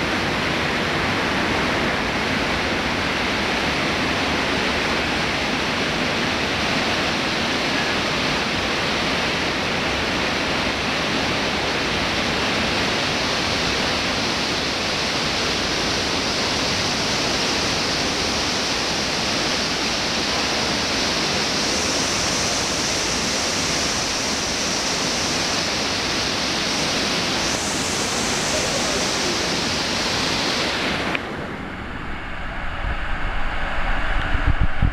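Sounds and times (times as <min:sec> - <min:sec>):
river water rushing through gorge: 0:00.0 - 0:34.4
low rumble: 0:31.2 - 0:34.9.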